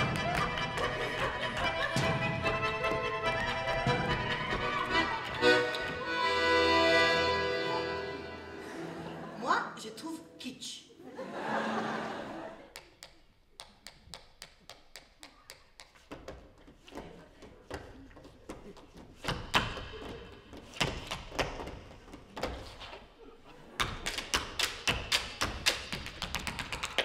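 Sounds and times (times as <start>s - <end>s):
shoes tapping on stage floor: 0.0s - 6.4s, 12.7s - 23.1s, 23.8s - 27.0s.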